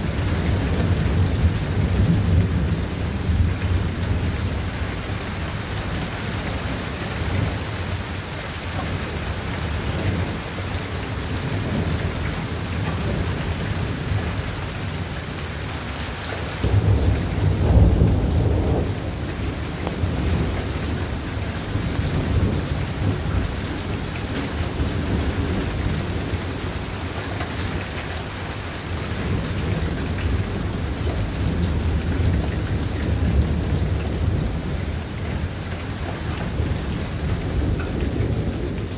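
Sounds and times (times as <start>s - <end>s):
steady rain: 0.0s - 38.9s
thunder rumbling: 16.6s - 38.9s.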